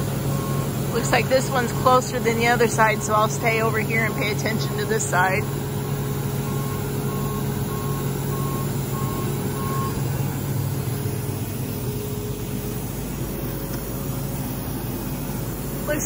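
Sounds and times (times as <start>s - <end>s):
reverse alarm beeping: 0.0s - 11.2s
diesel engine running: 0.0s - 16.0s.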